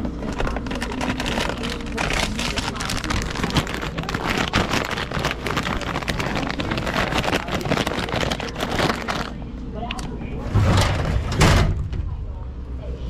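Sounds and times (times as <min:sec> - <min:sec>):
plastic chip bag crinkling: 0:00.0 - 0:10.0
low steady rumble: 0:00.0 - 0:13.0.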